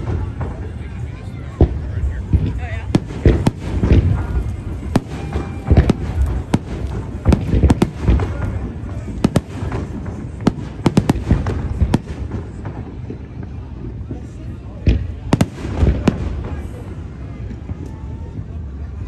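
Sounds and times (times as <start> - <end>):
deep firework booms: 0.0 - 19.0
firework shells bursting: 1.6 - 13.1.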